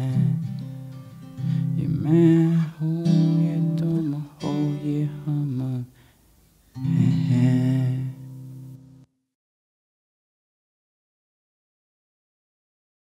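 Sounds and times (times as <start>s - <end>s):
acoustic guitar strumming chords: 0.0s - 6.0s, 6.7s - 9.1s.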